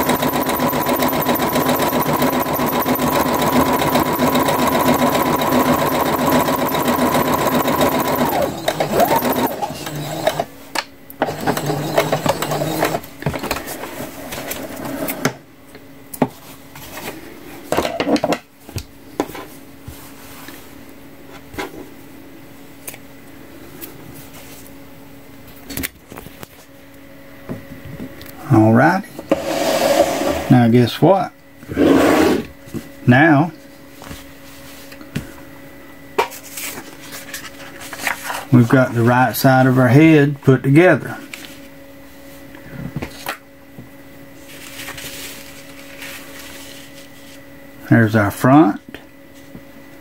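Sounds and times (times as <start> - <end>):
sewing machine stitching: 0.0 - 10.5, 11.2 - 13.1.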